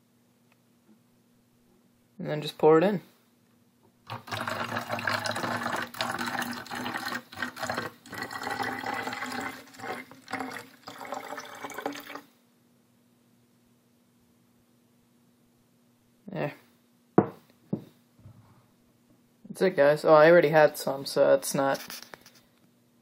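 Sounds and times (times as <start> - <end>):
water pouring into plastic bottle: 4.1 - 12.3.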